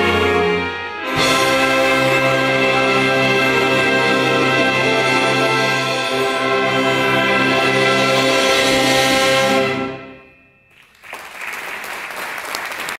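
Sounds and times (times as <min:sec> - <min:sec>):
wind band holding loud chord: 0:00.0 - 0:10.3
audience applause: 0:10.7 - 0:13.0.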